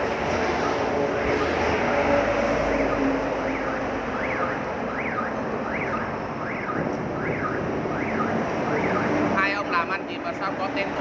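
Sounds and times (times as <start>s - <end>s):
street traffic: 0.0s - 11.0s
electronic siren wailing: 0.5s - 9.2s.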